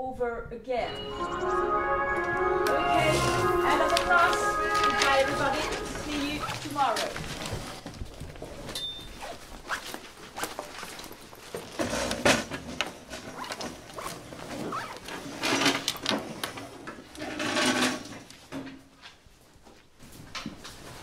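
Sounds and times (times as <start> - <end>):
bags and coats handled: 2.8 - 16.4
rustling and scraping: 3.0 - 21.0.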